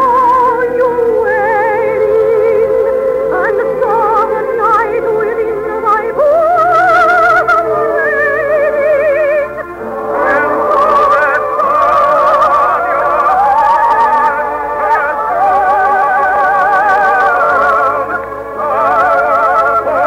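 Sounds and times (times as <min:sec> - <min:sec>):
orchestral music: 0:06.8 - 0:20.0.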